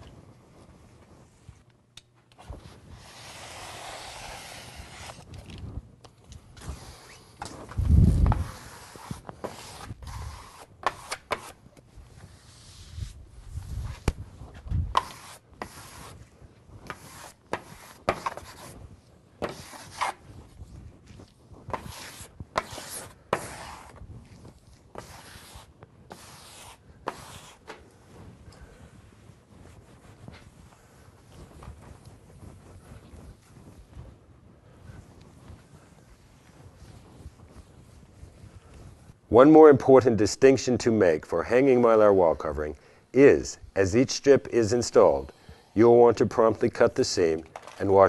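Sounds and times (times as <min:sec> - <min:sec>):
sponge rubbing on vinyl: 0:02.6 - 0:05.3, 0:08.0 - 0:11.6, 0:12.2 - 0:16.3, 0:21.7 - 0:28.4.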